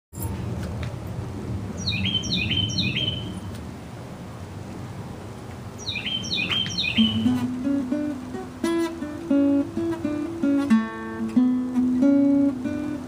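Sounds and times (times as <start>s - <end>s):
low outdoor hum: 0.2s - 13.0s
songbird chirping: 1.8s - 3.6s, 5.7s - 8.0s.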